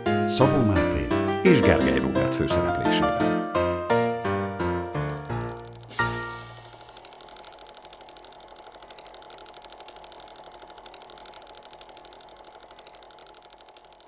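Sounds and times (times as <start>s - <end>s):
small machine rattling: 4.6s - 14.0s.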